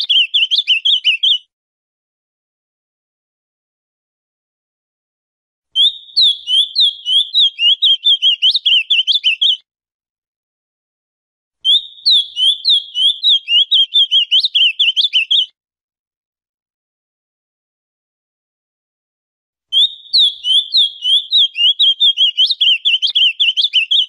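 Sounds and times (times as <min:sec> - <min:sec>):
bird warbling song: 0:00.0 - 0:01.4, 0:05.8 - 0:09.6, 0:11.6 - 0:15.5, 0:19.7 - 0:24.0.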